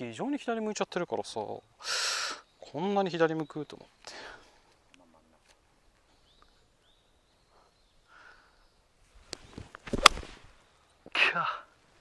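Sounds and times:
faint bird chirps: 0:00.6 - 0:09.0
golf club swing: 0:09.3 - 0:10.4
golf club striking ball: 0:09.9 - 0:10.3.

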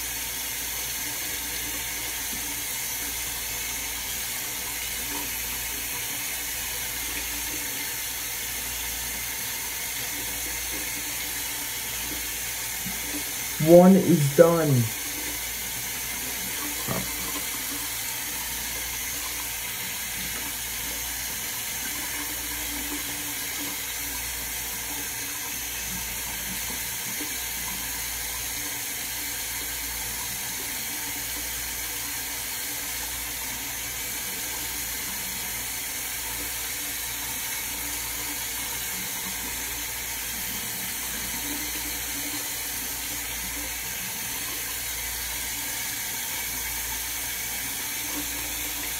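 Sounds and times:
tap water running into sink: 0:14.9 - 0:48.9.

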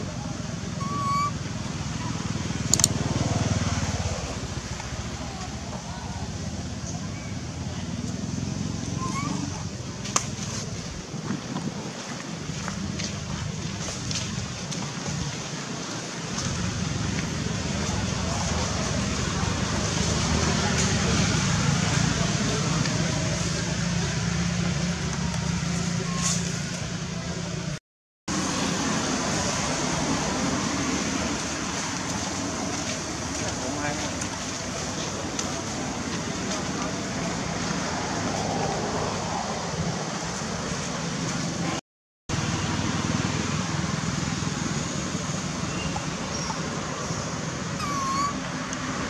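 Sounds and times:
monkey cry: 0:00.8 - 0:01.4, 0:08.9 - 0:09.6, 0:47.8 - 0:48.5.

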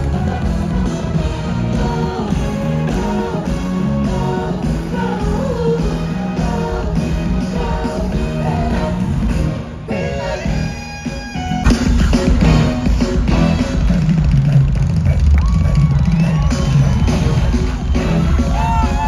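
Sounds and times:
drums keeping a steady beat: 0:00.0 - 0:09.6, 0:10.4 - 0:19.0
live band music: 0:00.0 - 0:19.0.

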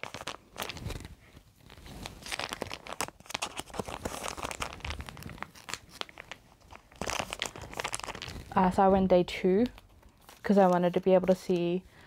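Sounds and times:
plastic sleeves crinkling: 0:00.0 - 0:11.9.

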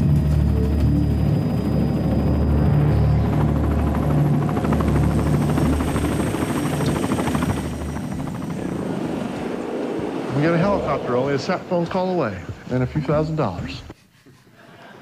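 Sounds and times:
background music: 0:00.0 - 0:08.4
helicopter rotor and engine: 0:00.0 - 0:12.8.

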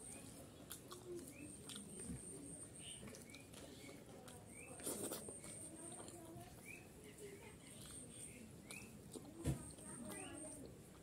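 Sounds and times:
eating mouthful: 0:00.0 - 0:06.9
bird chirping: 0:06.6 - 0:07.0.

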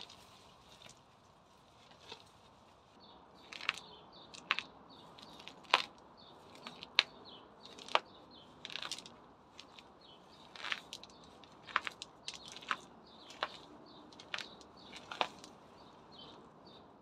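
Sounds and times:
weed stems snapping and tearing: 0:03.4 - 0:07.1, 0:07.7 - 0:15.6.

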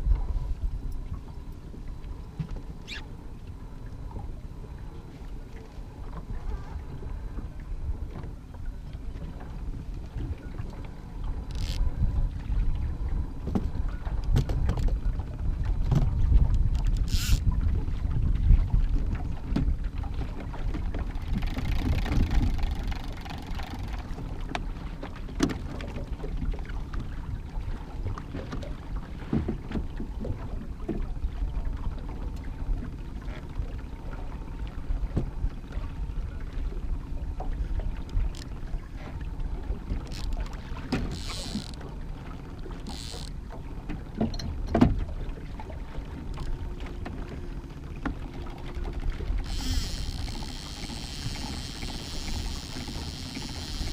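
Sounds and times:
water lapping at boat: 0:00.0 - 0:53.9
wind rumbling on microphone: 0:00.0 - 0:53.9
fishing gear clicks and knocks: 0:11.5 - 0:11.9, 0:15.9 - 0:17.4, 0:20.8 - 0:24.6, 0:39.9 - 0:41.9, 0:42.7 - 0:43.4, 0:48.0 - 0:53.9.

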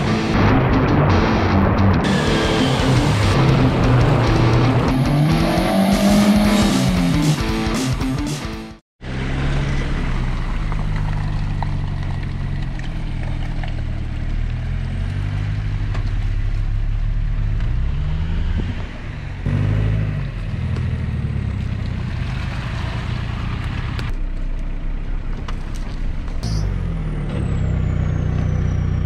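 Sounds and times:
off-road engines revving in mud: 0:09.0 - 0:24.1.

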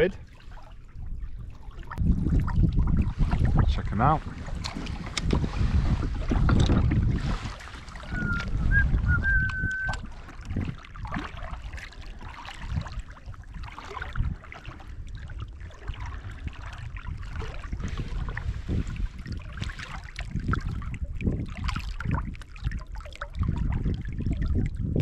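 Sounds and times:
waves slapping plastic hull: 0:00.0 - 0:25.0
short high whistles: 0:08.1 - 0:10.0.

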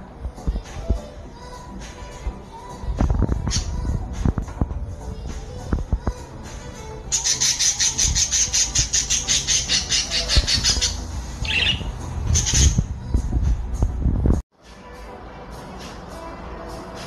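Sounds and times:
budgerigar chattering: 0:07.2 - 0:11.8
budgerigar chirp: 0:07.2 - 0:12.8.

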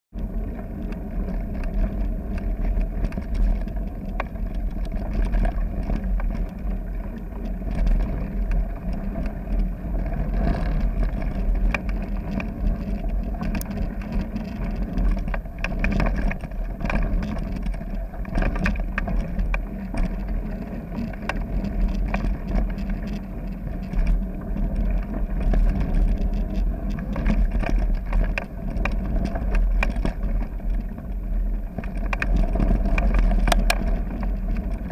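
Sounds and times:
wind rumble on microphone: 0:00.1 - 0:34.9
bike rattling: 0:00.2 - 0:34.9.

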